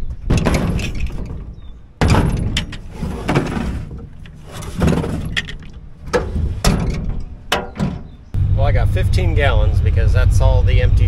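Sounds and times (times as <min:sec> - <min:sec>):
buckets thunking on wooden bed: 0:00.3 - 0:08.3.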